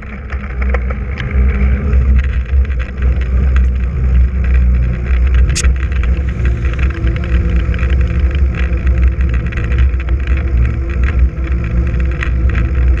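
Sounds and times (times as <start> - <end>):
bike clicks and rattles: 0.0 - 13.0
tyre noise on asphalt: 0.0 - 13.0
wind rumbling on microphone: 0.0 - 13.0.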